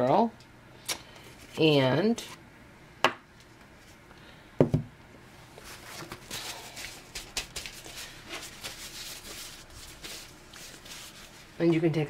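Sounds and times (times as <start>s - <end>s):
knock on table: 4.6s - 4.9s
metal foil crinkling: 5.7s - 11.6s.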